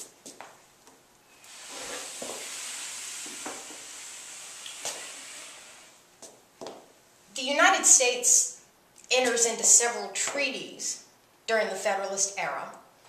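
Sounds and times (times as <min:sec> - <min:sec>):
steady hiss: 0:00.0 - 0:08.8.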